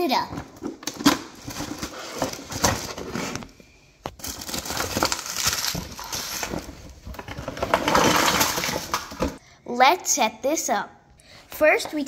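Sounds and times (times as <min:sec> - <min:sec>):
cardboard packaging rustling: 0:00.6 - 0:09.4
plastic bag crinkling: 0:04.1 - 0:09.4.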